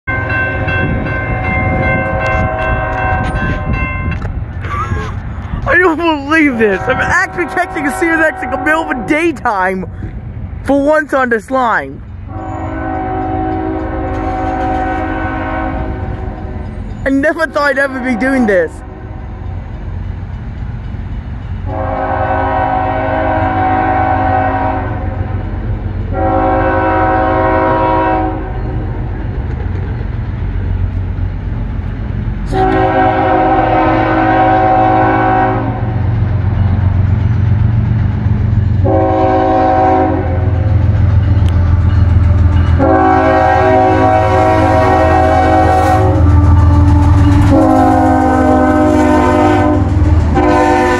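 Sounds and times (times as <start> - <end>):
diesel engines rumbling: 0.3 - 50.9
locomotive air horn blasts: 6.7 - 9.2, 12.3 - 16.2, 21.7 - 25.2, 26.1 - 28.6, 32.5 - 36.0, 38.8 - 40.6, 42.8 - 50.9.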